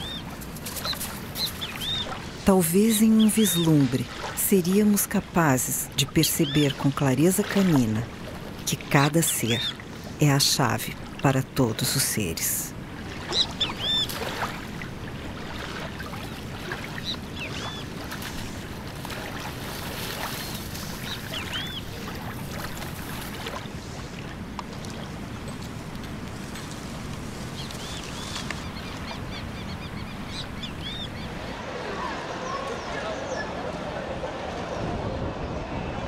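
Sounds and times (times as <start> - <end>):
bird chirps: 0.0 - 2.2, 20.4 - 21.9.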